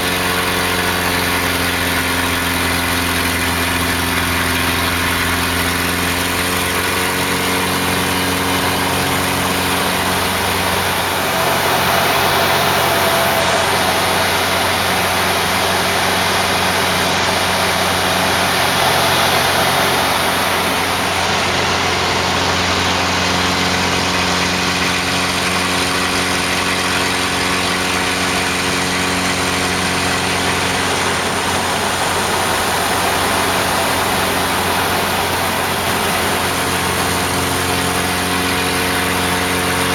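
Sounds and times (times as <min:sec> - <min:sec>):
plane engine droning: 0:00.0 - 0:39.9
rushing wind: 0:07.3 - 0:22.8, 0:28.8 - 0:39.9.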